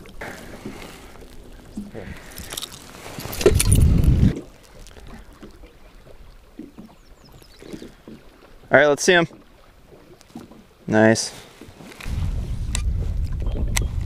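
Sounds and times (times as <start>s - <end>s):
water splashing against metal boat: 0.0s - 14.0s
handling noise: 0.2s - 5.5s.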